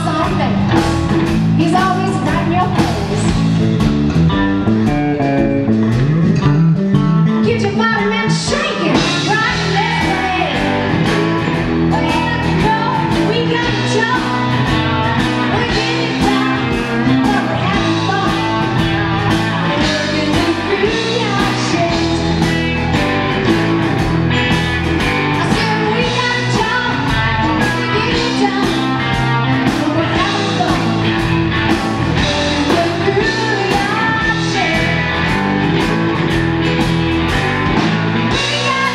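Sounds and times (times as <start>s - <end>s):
woman singing: 0.0s - 0.9s, 1.6s - 3.5s, 7.4s - 23.0s, 25.4s - 35.4s, 38.3s - 38.9s
live blues band: 0.0s - 38.9s.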